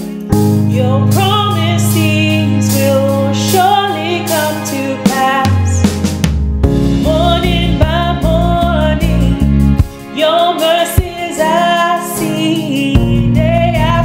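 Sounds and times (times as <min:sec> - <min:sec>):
instrumental accompaniment: 0:00.0 - 0:14.0
deep bass: 0:00.3 - 0:09.9, 0:13.0 - 0:14.0
woman singing worship song: 0:00.6 - 0:06.0, 0:07.0 - 0:14.0.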